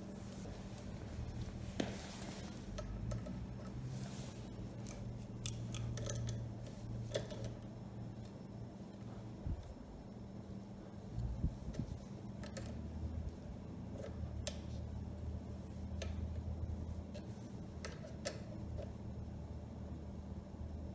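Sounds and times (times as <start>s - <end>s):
low steady hum: 0.0s - 20.9s
wrenches clicking and scraping: 4.8s - 6.5s.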